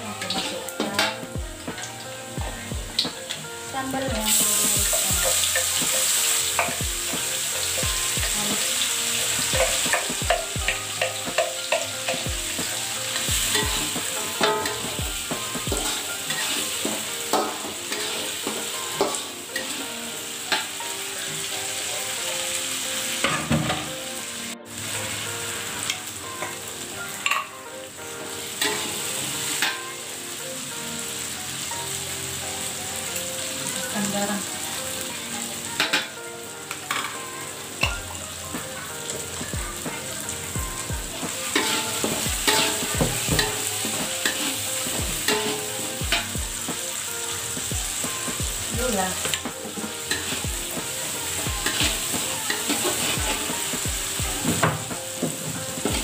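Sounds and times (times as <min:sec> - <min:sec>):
paste sizzling in hot oil: 0:00.0 - 0:27.5, 0:28.2 - 0:56.0
metal spatula scraping wok: 0:13.1 - 0:19.8, 0:41.4 - 0:46.0, 0:51.2 - 0:53.8.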